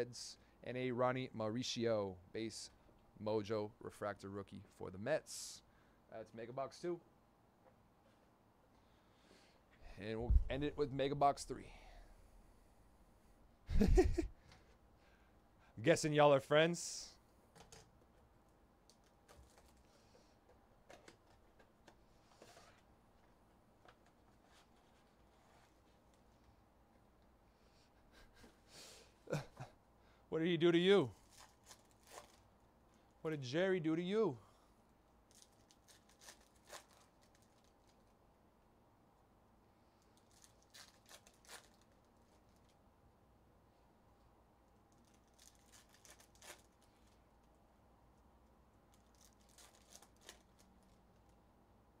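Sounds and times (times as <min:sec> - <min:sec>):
plastic wrap crinkling: 0:31.2 - 0:32.5, 0:35.3 - 0:38.2, 0:40.1 - 0:42.8, 0:44.9 - 0:47.2, 0:48.9 - 0:51.4.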